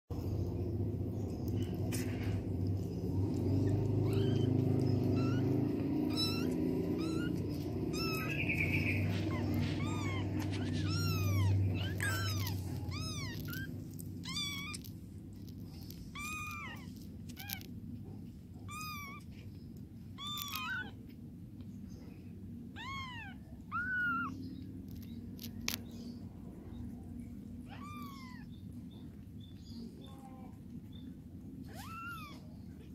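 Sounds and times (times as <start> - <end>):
low rumble: 0.1 - 20.4
kittens mewing: 0.2 - 21.3, 22.0 - 25.9, 26.8 - 29.2, 31.4 - 32.9.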